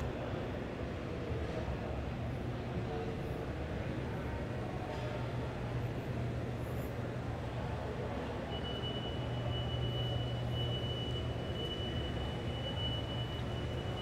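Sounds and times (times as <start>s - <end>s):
exhibition hall background noise: 0.0s - 14.0s
thin high steady tone: 8.3s - 14.0s.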